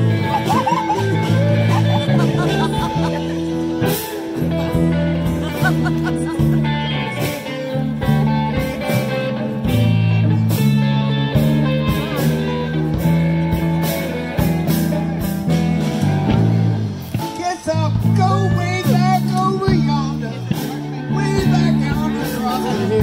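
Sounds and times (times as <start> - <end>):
band playing blues-rock music: 0.0 - 23.0.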